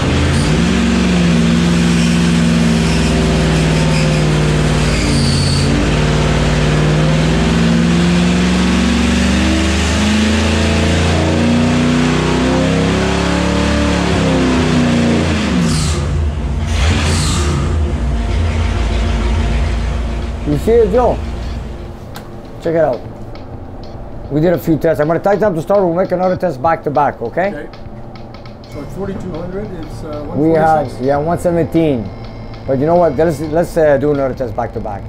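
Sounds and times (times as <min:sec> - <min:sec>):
engine revving on a dyno: 0:00.0 - 0:21.8.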